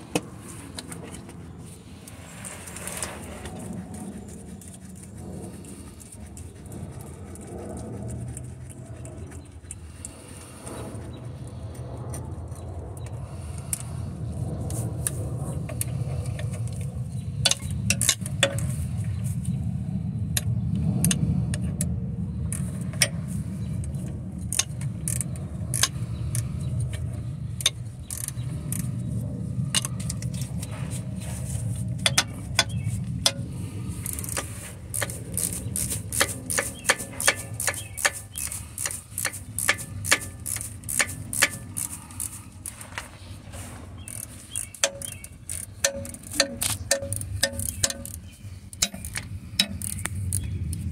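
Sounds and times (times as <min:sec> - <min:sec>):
steady low hum: 0:00.0 - 0:50.9
hand ratchet clicking: 0:17.5 - 0:18.6, 0:24.5 - 0:26.5, 0:27.6 - 0:28.9, 0:34.0 - 0:42.8, 0:44.0 - 0:50.8.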